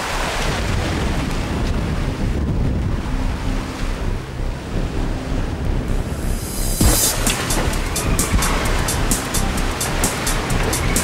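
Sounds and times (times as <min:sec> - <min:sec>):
wind blowing across microphone: 0:00.0 - 0:09.6
waves and water rushing: 0:00.0 - 0:11.0.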